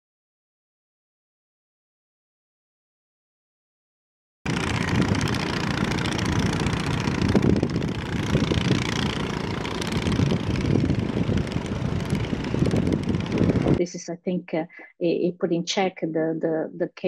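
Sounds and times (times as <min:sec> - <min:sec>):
outboard motors running: 0:04.5 - 0:13.8.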